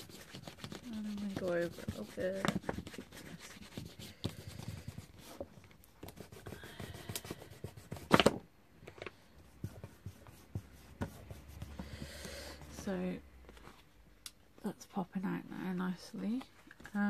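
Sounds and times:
hands rubbing paper: 0.0s - 8.2s, 9.4s - 12.8s.

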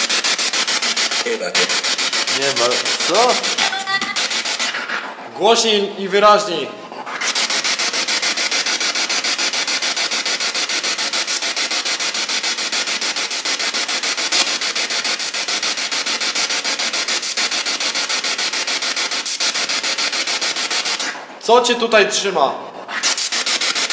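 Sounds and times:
pulsing radio static: 1.0s - 4.8s.

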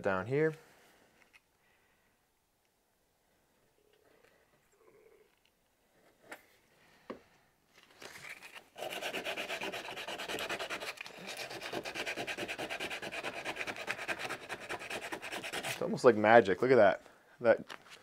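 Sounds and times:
hand sanding wood: 8.8s - 15.9s.

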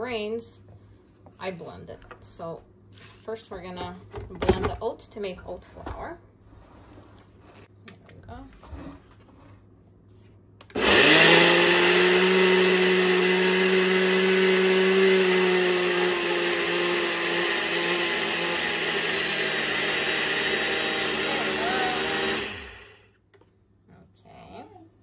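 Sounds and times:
blender grinding: 10.7s - 23.0s.

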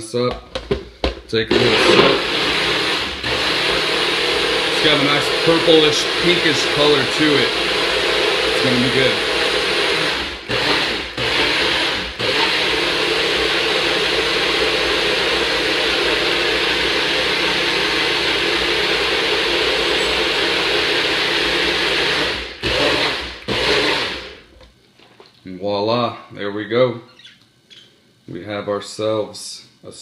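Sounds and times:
blender motor running: 1.5s - 24.5s.

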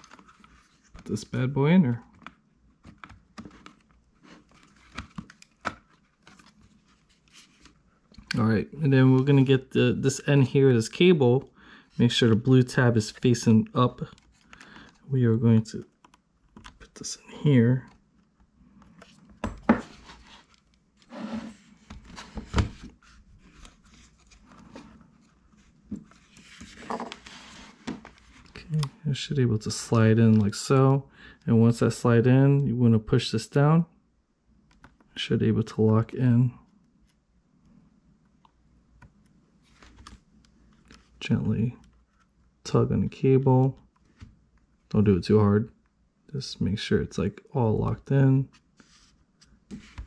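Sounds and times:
cable handling: 0.0s - 1.1s, 2.0s - 8.4s, 14.0s - 15.1s.

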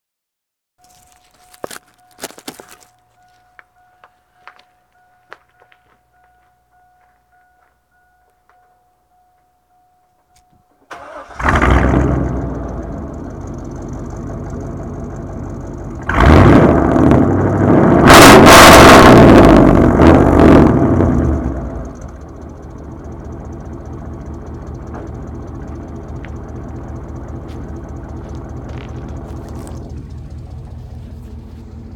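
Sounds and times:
car engine idling and revving: 10.9s - 31.9s.

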